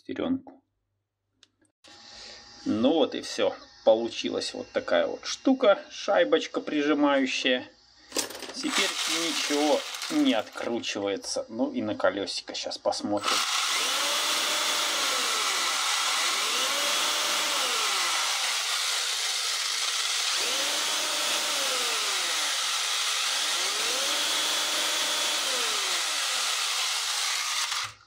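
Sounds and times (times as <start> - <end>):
electric motor whirring: 8.7 - 10.7, 13.2 - 28.0.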